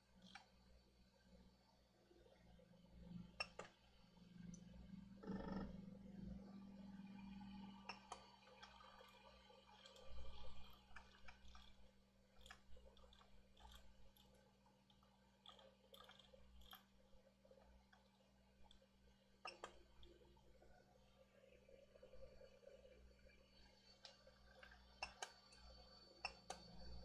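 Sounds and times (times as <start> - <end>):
low steady hum: 0.0 - 27.0
small clicks and ticks: 0.0 - 27.0.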